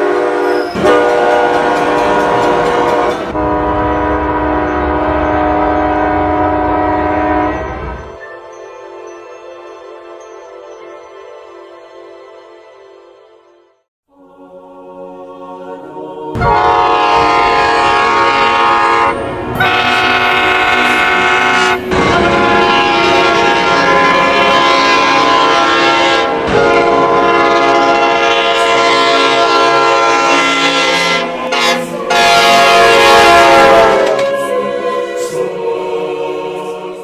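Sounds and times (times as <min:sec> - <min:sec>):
train air horn blasts: 0:00.0 - 0:08.0, 0:16.4 - 0:35.1.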